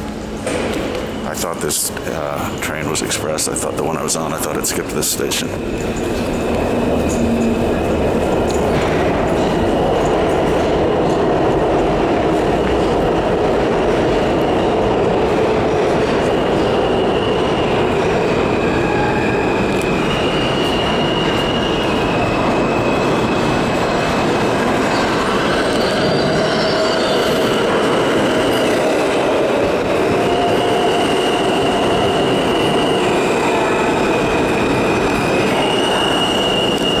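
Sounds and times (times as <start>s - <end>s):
subway train running: 0.0s - 37.0s
steel wheels squealing: 16.0s - 28.8s, 30.1s - 37.0s.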